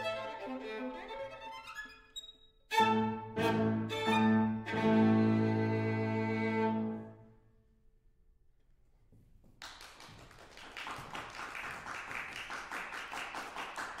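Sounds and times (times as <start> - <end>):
violin and piano chord: 2.7 - 7.3
audience applauding: 9.6 - 14.0.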